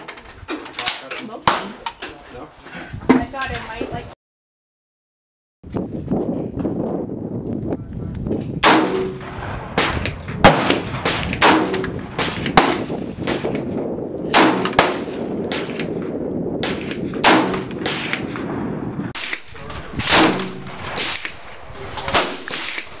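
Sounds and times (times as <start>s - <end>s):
rifle shots: 8.6s - 13.7s, 14.3s - 19.4s, 20.0s - 23.0s.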